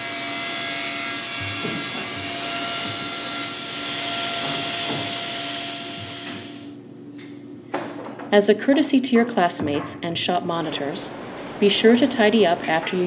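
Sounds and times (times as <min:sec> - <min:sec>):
table saw cutting wood: 0:00.0 - 0:06.7.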